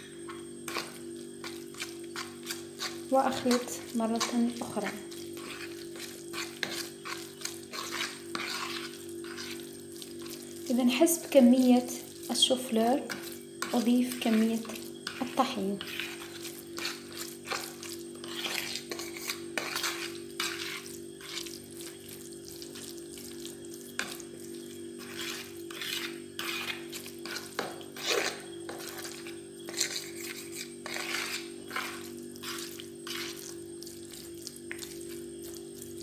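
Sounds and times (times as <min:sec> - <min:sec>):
fork scraping in plastic bowl: 0:00.3 - 0:10.4, 0:12.2 - 0:22.0, 0:25.0 - 0:35.6.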